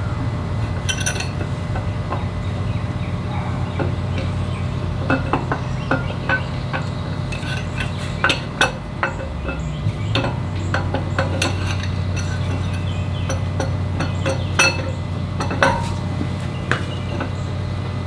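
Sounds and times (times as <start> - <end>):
low hum: 0.0 - 18.0
metal parts clinking: 0.7 - 1.9, 5.0 - 17.4.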